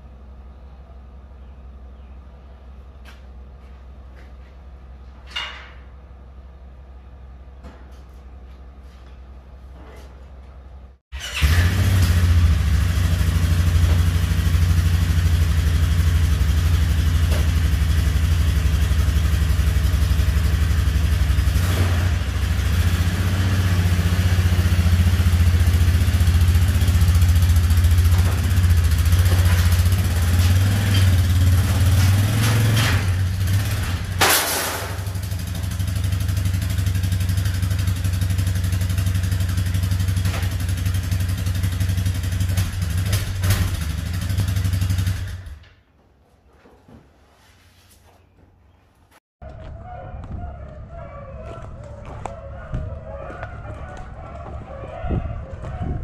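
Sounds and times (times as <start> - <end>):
atv engine running at low throttle: 11.2 - 34.2, 35.0 - 45.6, 49.4 - 56.0.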